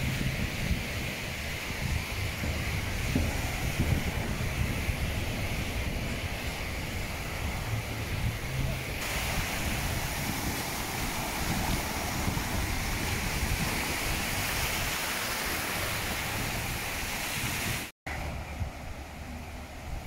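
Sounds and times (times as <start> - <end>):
surf washing on sand: 0.0 - 20.0
wind on microphone: 0.0 - 20.0.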